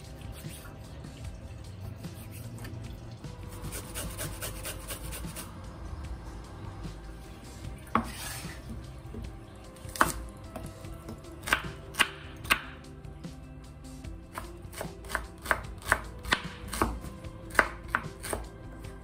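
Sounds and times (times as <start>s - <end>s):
knife chopping on cutting board: 3.7s - 5.5s, 7.9s - 9.2s, 9.9s - 10.2s, 11.1s - 12.8s, 14.3s - 18.5s.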